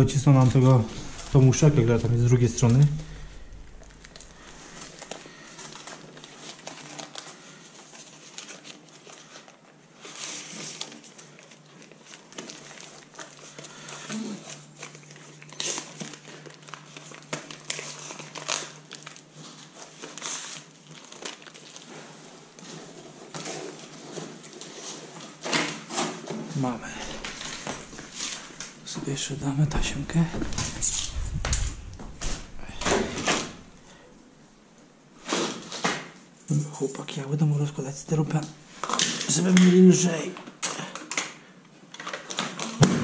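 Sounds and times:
sharp crackles: 0.0 - 7.2
tape crinkling and rustling: 0.0 - 43.0.

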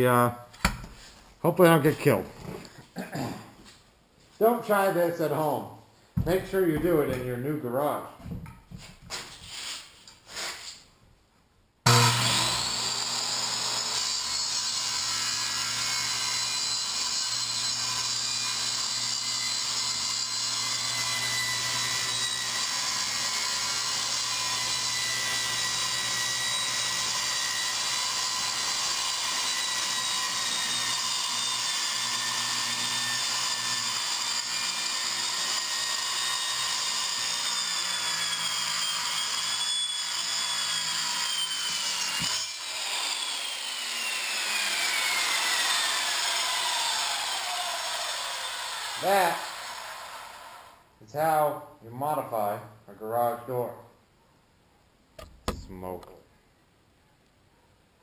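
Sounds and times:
circular saw whining: 11.9 - 50.8
saw blade spinning down: 11.9 - 50.8.

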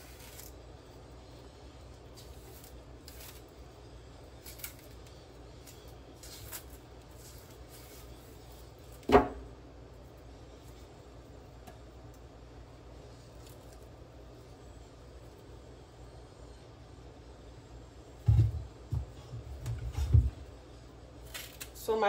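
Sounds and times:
knife scraping plantain peel: 0.0 - 0.6, 2.1 - 3.7, 4.3 - 9.1.

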